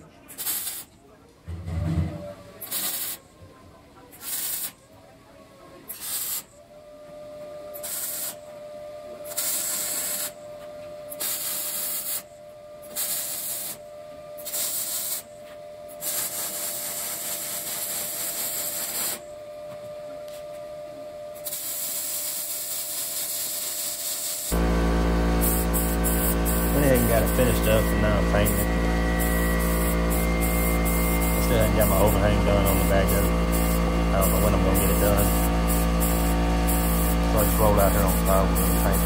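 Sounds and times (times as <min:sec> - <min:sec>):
welding arc crackling: 0:00.4 - 0:00.9, 0:02.6 - 0:03.2, 0:11.2 - 0:12.2, 0:12.9 - 0:13.8, 0:14.4 - 0:15.3, 0:16.0 - 0:19.2, 0:21.4 - 0:39.0.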